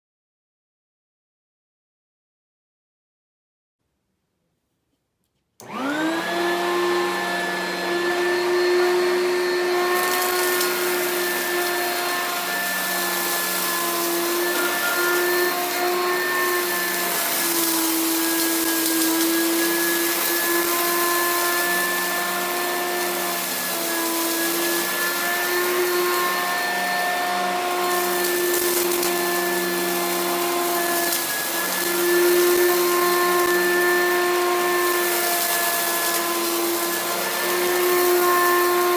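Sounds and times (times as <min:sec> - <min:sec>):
vacuum cleaner motor whining: 0:05.6 - 0:38.9
suction hiss on carpet: 0:09.9 - 0:38.9.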